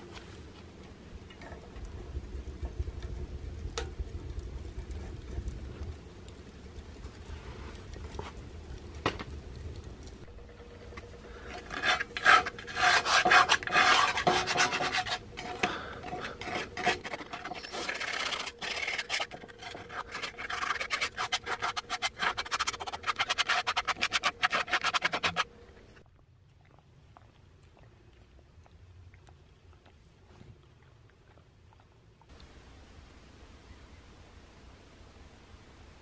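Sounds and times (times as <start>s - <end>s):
rasp grater scraping: 11.5s - 25.5s.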